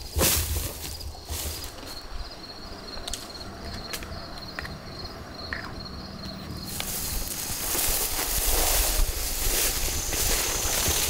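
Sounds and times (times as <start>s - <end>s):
rustling: 0.0s - 2.1s, 6.7s - 11.0s
insects chirping: 0.0s - 11.0s.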